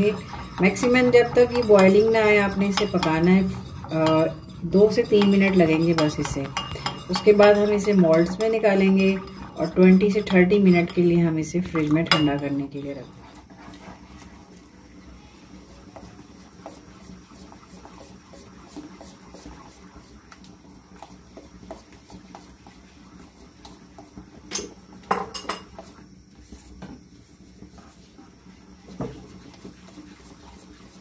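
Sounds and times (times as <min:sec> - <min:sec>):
spoon stirring thick puree: 0:00.0 - 0:31.0
spoon clinking on pan: 0:05.1 - 0:08.5, 0:12.1 - 0:12.5.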